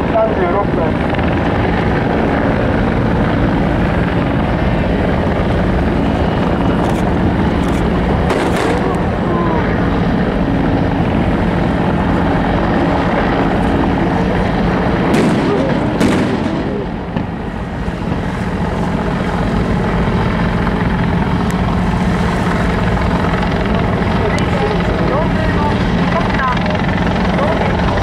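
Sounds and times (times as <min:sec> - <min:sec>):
boat engines rumbling: 0:00.0 - 0:28.0
wind over water: 0:00.0 - 0:28.0
gunshots: 0:08.3 - 0:08.9, 0:15.1 - 0:17.3.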